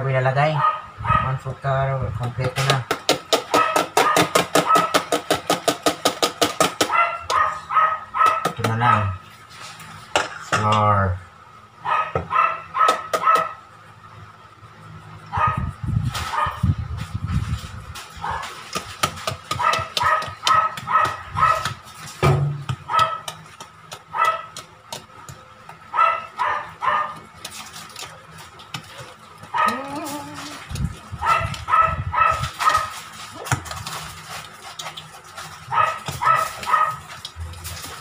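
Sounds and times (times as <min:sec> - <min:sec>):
small dog yapping: 0:03.5 - 0:05.1, 0:06.8 - 0:09.1, 0:11.9 - 0:13.6, 0:16.3 - 0:16.6, 0:18.2 - 0:18.6, 0:19.5 - 0:21.8, 0:22.9 - 0:23.4, 0:24.1 - 0:24.6, 0:25.9 - 0:27.2, 0:28.9 - 0:33.6, 0:35.7 - 0:37.2.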